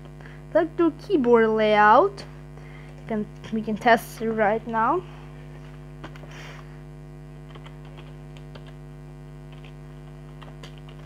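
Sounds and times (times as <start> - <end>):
electrical hum: 0.0 - 11.0
laptop keyboard typing: 7.5 - 8.8, 9.5 - 11.0.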